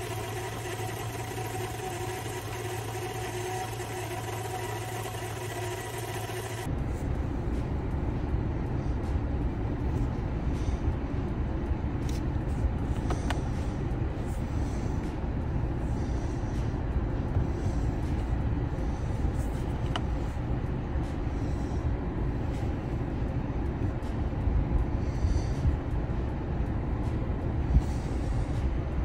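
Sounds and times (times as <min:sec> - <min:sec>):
engine idling with belt whine: 0:00.0 - 0:29.0
low rumble in car cabin: 0:06.6 - 0:29.0.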